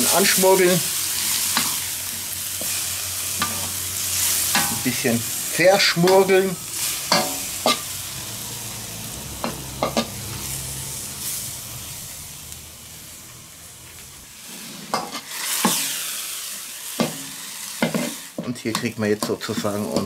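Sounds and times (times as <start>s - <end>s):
metal spoon scraping a pan: 0.0s - 5.1s, 6.0s - 8.0s, 9.4s - 10.6s, 14.4s - 16.1s
tomatoes sizzling in a wok: 0.0s - 20.0s.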